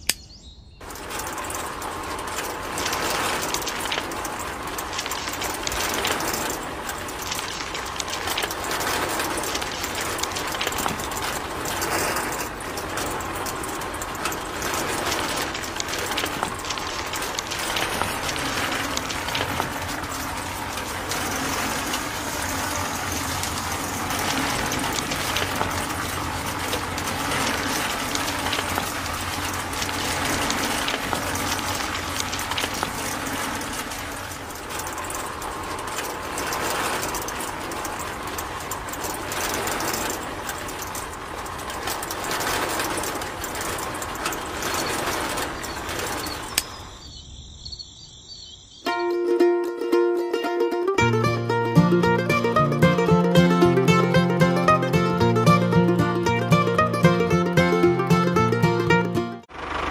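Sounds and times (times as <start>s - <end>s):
sand pouring through sieve: 0.8s - 46.6s.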